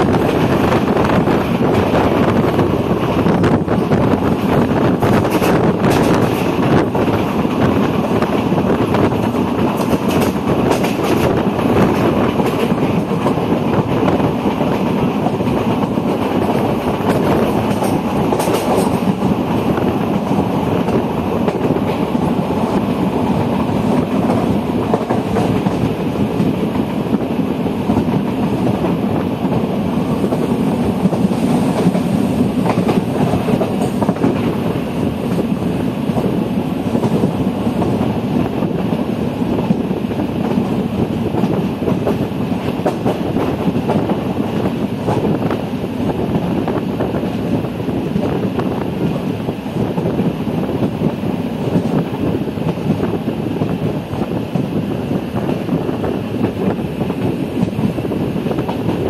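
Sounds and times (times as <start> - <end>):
clacks over rail joints: 0.0 - 19.4, 20.2 - 26.8, 27.9 - 35.5, 40.4 - 45.4
rushing air: 0.0 - 59.0
train wheels on rails: 0.0 - 59.0.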